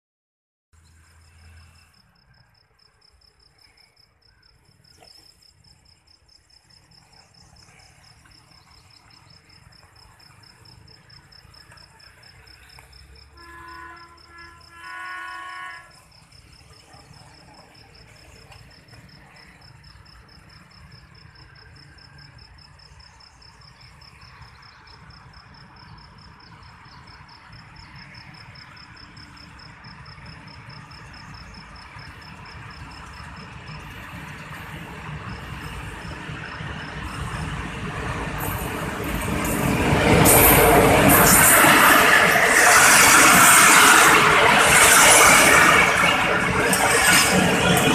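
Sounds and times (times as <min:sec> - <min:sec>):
cricket chirping: 0:00.8 - 0:42.4
diesel locomotive rumble: 0:05.8 - 0:47.9
locomotive horn blasts: 0:13.3 - 0:16.2.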